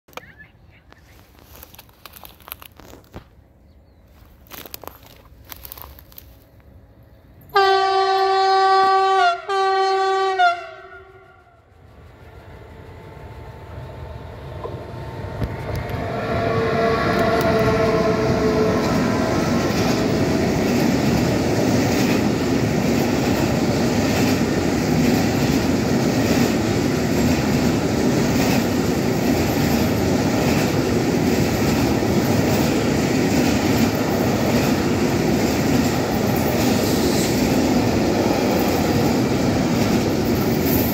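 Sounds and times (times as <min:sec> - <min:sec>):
freight train rumbling past: 0:04.1 - 0:40.9
locomotive horn blasts: 0:07.5 - 0:11.6, 0:15.8 - 0:19.5.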